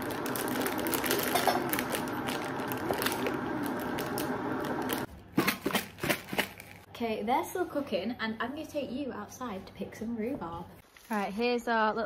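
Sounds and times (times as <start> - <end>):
kettle heating: 0.0 - 5.1
plastic packet crinkling: 0.0 - 6.9.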